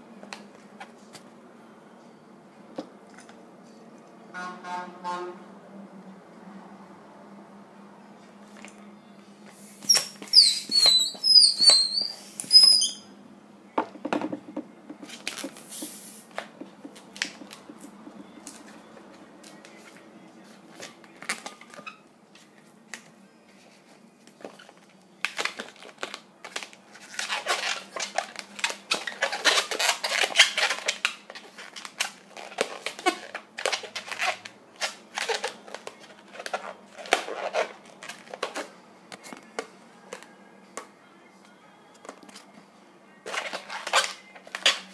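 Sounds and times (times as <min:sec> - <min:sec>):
balloon crackles: 0:09.7 - 0:12.9, 0:15.0 - 0:18.6, 0:25.3 - 0:38.7
balloon squeaking and rubbing: 0:09.7 - 0:13.0, 0:27.1 - 0:38.5, 0:43.3 - 0:44.9.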